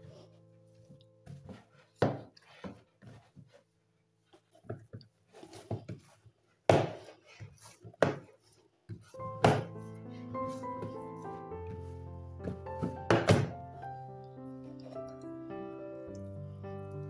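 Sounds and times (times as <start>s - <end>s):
dough kneading thumps: 4.4s - 13.9s.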